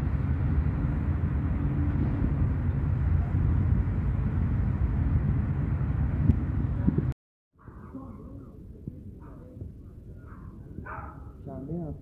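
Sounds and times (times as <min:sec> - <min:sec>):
low rumble of outdoor noise: 0:00.0 - 0:12.0.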